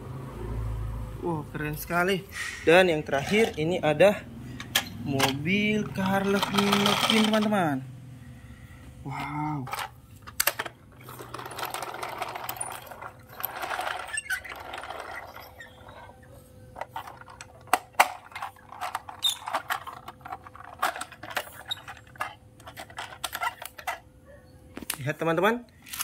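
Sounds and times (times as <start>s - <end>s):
plastic wheels rolling over tiles: 3.1s - 3.7s, 4.7s - 7.7s, 9.6s - 24.0s.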